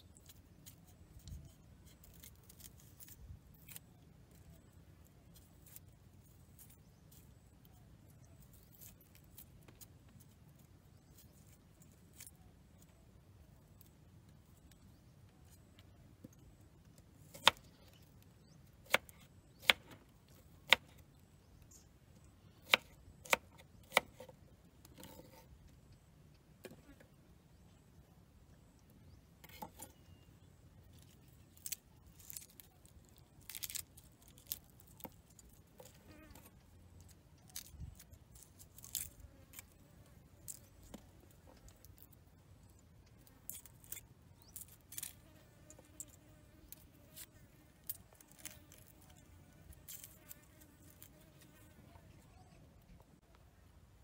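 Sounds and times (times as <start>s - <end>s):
knife peeling garlic: 0.2s - 13.0s, 31.0s - 36.6s, 37.4s - 39.8s, 43.4s - 45.3s, 49.8s - 51.2s.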